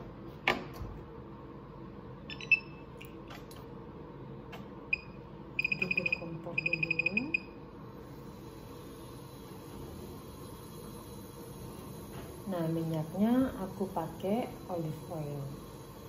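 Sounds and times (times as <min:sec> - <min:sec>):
hob touch control beeps: 0:02.3 - 0:02.8, 0:04.9 - 0:07.5.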